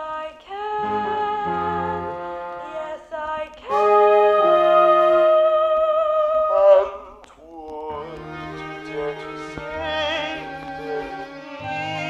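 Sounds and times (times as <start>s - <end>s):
sustained keyboard chords: 0.8s - 2.8s, 8.0s - 12.0s.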